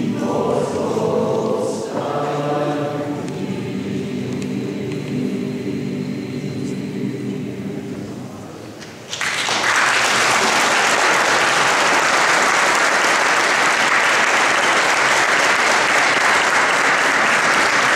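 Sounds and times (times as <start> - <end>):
choir singing chord: 0.0 - 8.6
audience applause: 9.1 - 17.9.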